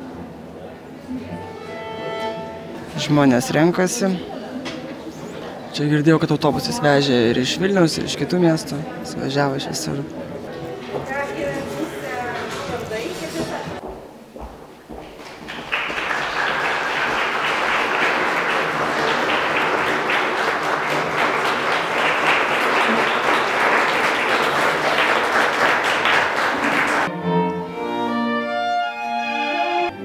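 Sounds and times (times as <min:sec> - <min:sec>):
bowed string instruments playing: 0:01.1 - 0:04.0, 0:24.3 - 0:30.0
audience applauding: 0:15.0 - 0:27.1.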